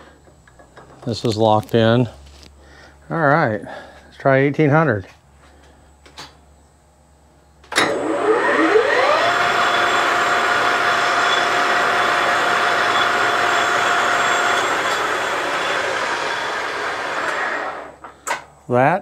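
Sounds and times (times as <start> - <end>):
lathe motor whine: 7.8 - 18.1.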